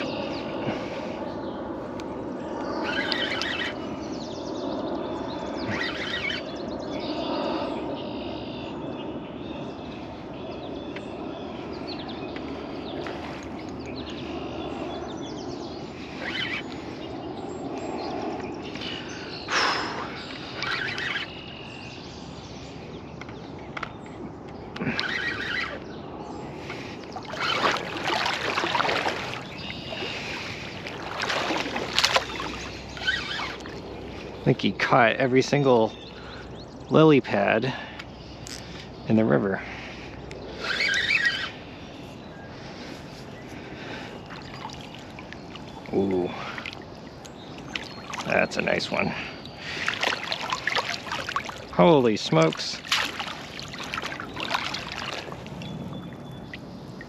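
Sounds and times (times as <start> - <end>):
steady outdoor rush: 0.0 - 57.0
fish splashing in water: 26.7 - 34.1, 44.2 - 57.0.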